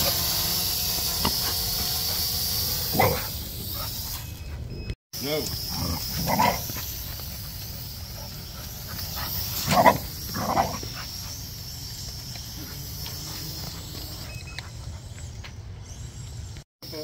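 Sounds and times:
drone propellers whining: 0.0 - 16.6
dog barking: 2.9 - 4.0.

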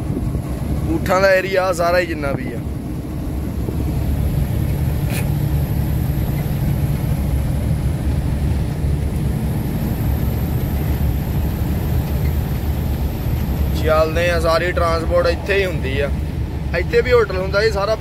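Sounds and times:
road noise: 0.0 - 18.0
truck engine drone: 0.0 - 18.0.

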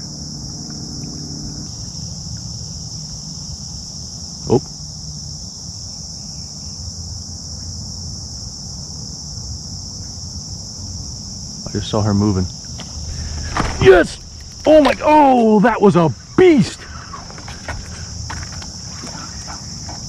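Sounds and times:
high-pitched insect chorus: 0.0 - 20.0
low background hum: 11.7 - 20.0.

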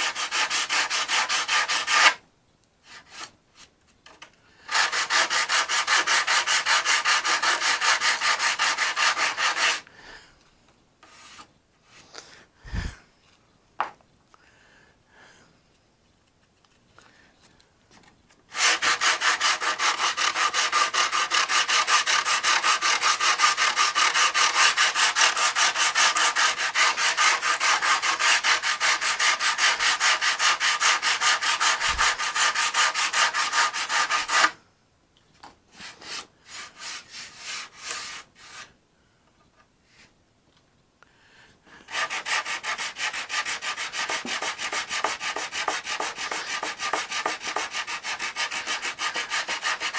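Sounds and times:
sandpaper sanding strokes: 4.7 - 9.8, 18.5 - 34.5, 35.8 - 38.7, 41.9 - 49.9.

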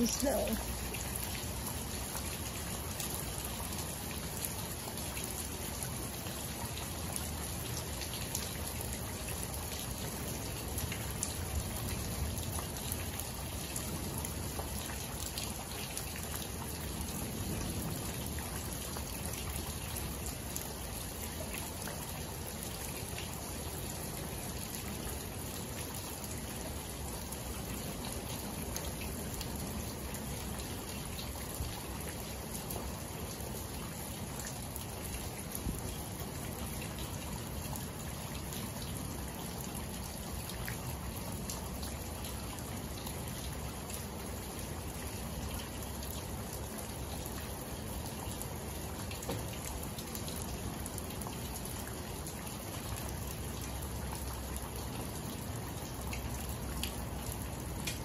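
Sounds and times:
raindrops ticking: 0.0 - 22.0, 47.3 - 58.0
rain falling onto puddles: 0.0 - 58.0.

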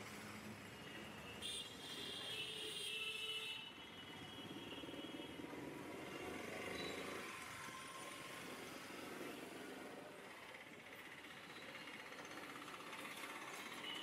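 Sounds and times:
street traffic: 0.0 - 14.0.

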